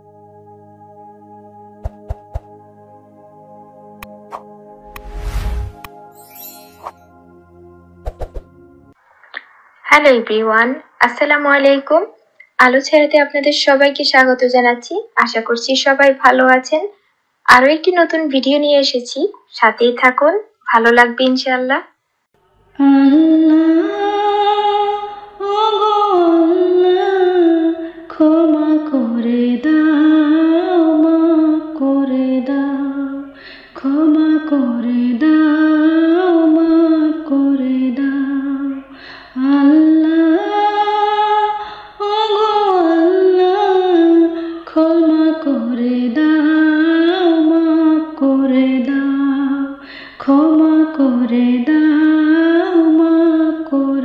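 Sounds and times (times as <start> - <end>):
woman singing devotional song: 22.7 - 54.0.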